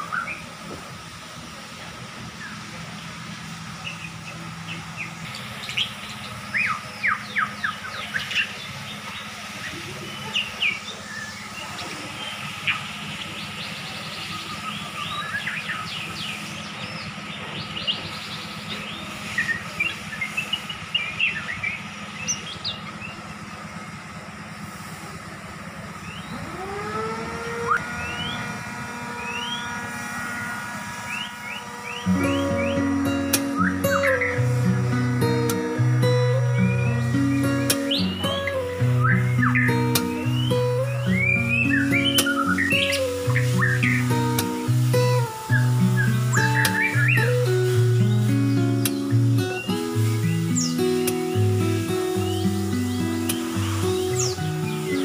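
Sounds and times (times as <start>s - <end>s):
songbirds chirping: 0.0s - 55.0s
steady low hum: 0.0s - 55.0s
held multi-tone sound: 26.3s - 55.0s.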